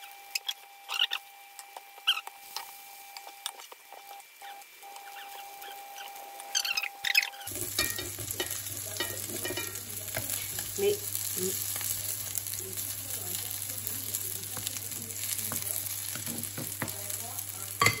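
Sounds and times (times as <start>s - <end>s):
light oil sizzle: 0.0s - 18.0s
spatulas scraping a frying pan: 7.4s - 12.4s, 13.9s - 18.0s.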